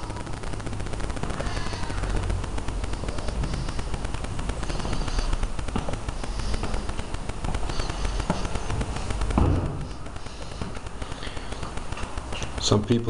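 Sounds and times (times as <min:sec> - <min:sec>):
dull thumps: 0:04.7 - 0:10.0.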